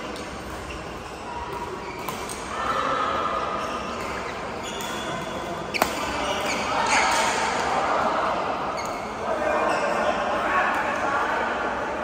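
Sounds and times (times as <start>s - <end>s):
din of busy sports hall: 0.0s - 12.0s
racket hitting shuttlecock: 5.7s - 7.4s.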